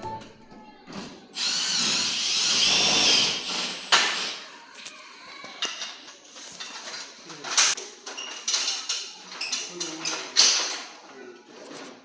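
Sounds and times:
power drill whining: 1.4 - 4.4.

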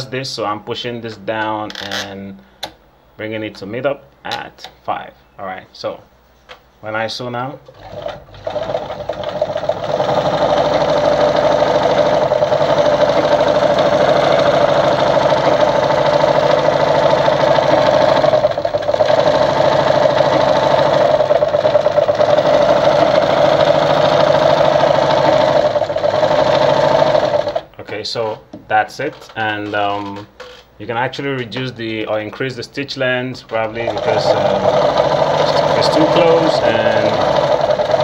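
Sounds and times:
sewing machine running: 7.7 - 27.7, 33.5 - 38.0.

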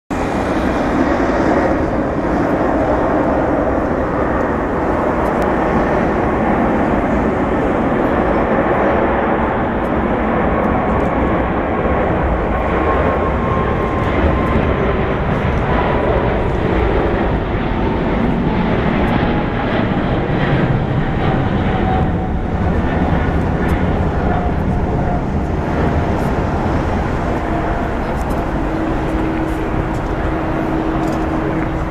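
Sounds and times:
jet engines rumbling with whine: 0.1 - 31.9.

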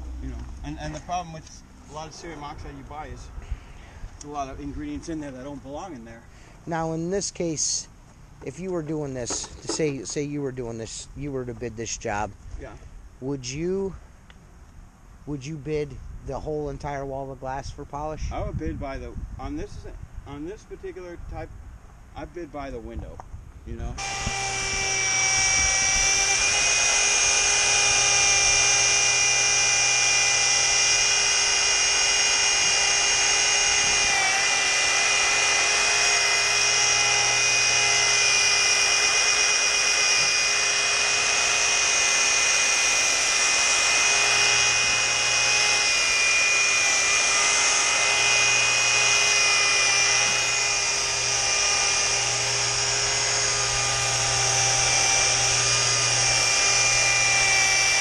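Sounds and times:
electric polisher motor whine: 24.0 - 58.0.

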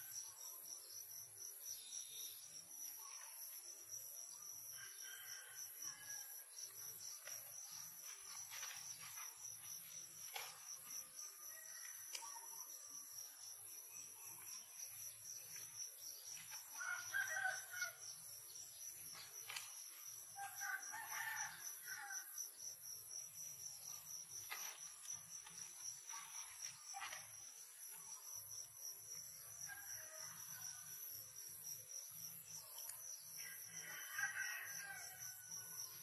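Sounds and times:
rooster crowing: 4.8 - 6.3, 16.8 - 18.0, 20.4 - 22.3, 33.4 - 35.5.

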